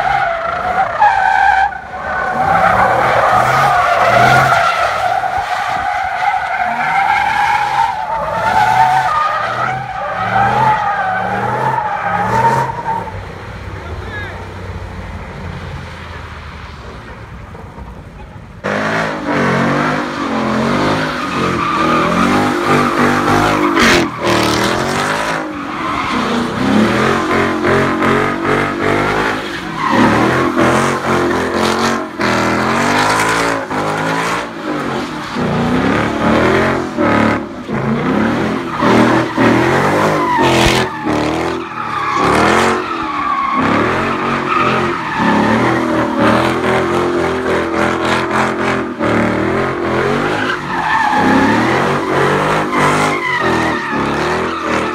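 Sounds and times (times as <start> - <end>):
tyres screeching on pavement: 0.0 - 54.9
car engine revving hard: 18.6 - 54.9.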